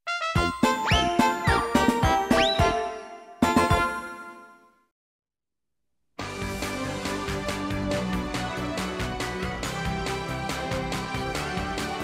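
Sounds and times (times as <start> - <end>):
background music with steady beat: 6.2 - 12.0.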